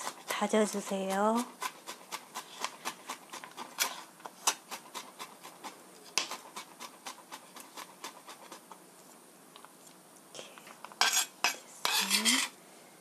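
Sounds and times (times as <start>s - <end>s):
knife blade scraping board: 1.4s - 8.7s, 11.0s - 12.5s.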